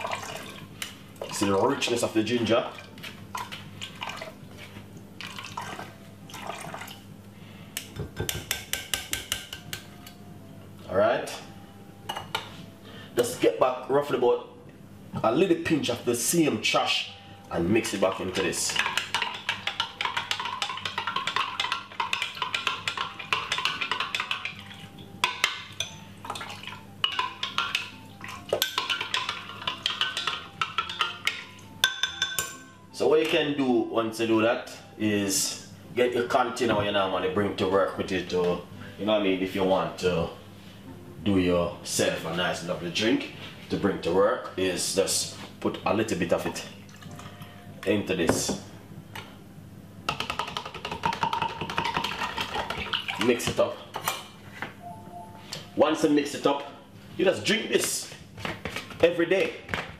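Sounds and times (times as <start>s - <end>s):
liquid trickling through sieve: 0.0s - 1.7s, 2.7s - 7.0s
background music: 8.5s - 37.4s, 38.2s - 42.2s, 54.8s - 56.2s
spoon clinking against glass: 18.0s - 32.7s.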